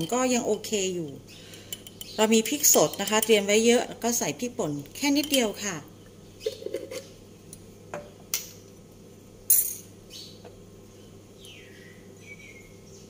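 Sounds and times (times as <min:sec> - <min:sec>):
spoon and kitchenware clinking: 0:01.0 - 0:03.5, 0:05.1 - 0:05.5.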